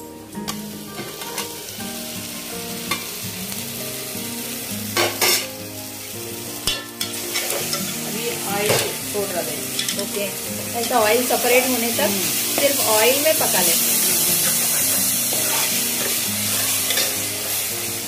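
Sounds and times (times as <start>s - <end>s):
sauce sizzling in hot oil: 0.0s - 18.0s
spatula scraping a pot: 14.4s - 17.2s.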